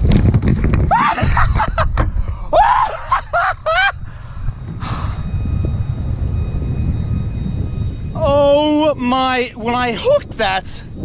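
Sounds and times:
steady low rumble: 0:00.0 - 0:11.0
man's excited high-pitched cries: 0:00.9 - 0:01.8, 0:02.5 - 0:04.0.

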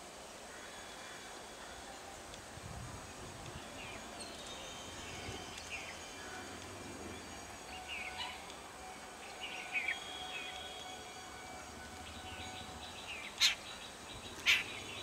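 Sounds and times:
faint low outdoor hum: 0:00.0 - 0:15.0
birds chirping: 0:03.5 - 0:08.6, 0:09.2 - 0:15.0.

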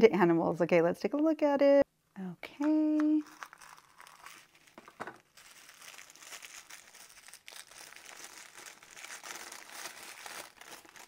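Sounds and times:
tissue paper crinkling: 0:03.2 - 0:11.0.

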